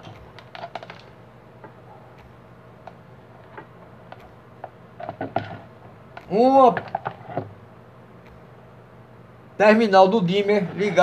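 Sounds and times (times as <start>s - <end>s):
small parts and wires clicking: 0.0s - 7.6s, 8.2s - 8.5s
faint steady hum: 0.0s - 11.0s.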